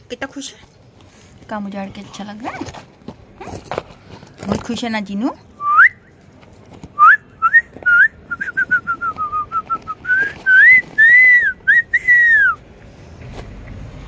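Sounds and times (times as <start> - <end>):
person whistling a tune: 7.0 - 12.6.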